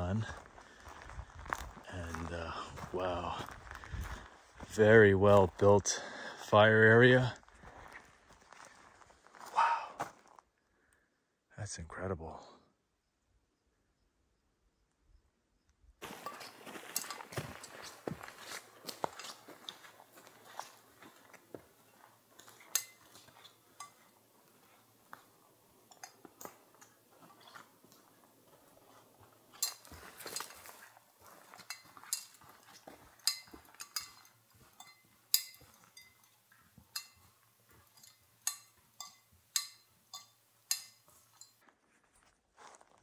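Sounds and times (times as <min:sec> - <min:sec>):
footsteps on rocky trail: 0:00.0 - 0:10.5, 0:16.0 - 0:43.0
feet scuffing: 0:16.0 - 0:21.8
gear clinking and knocking: 0:16.0 - 0:28.2, 0:29.4 - 0:41.6.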